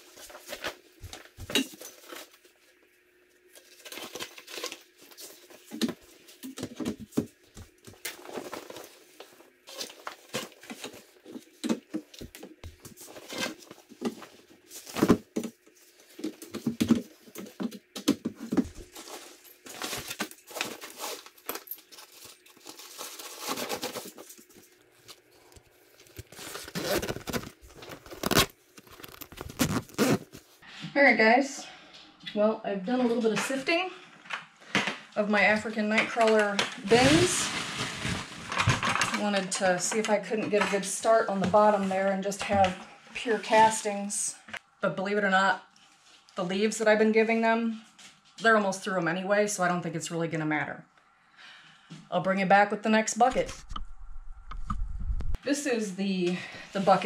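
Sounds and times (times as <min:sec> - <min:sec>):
fabric rustling and crinkling: 0:18.6 - 0:30.6.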